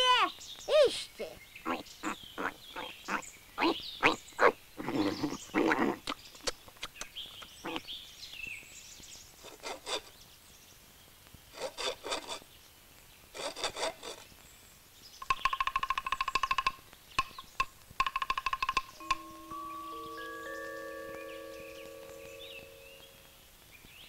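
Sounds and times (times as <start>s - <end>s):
hand saw cutting wood: 9.4s - 10.1s, 11.6s - 12.4s, 13.4s - 14.3s
ringing pitched taps: 15.2s - 23.3s.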